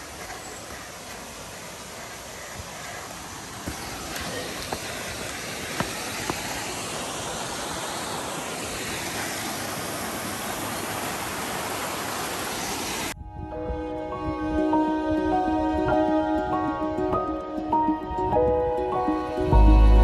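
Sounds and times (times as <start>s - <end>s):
stream rushing over rocks: 0.0s - 13.2s.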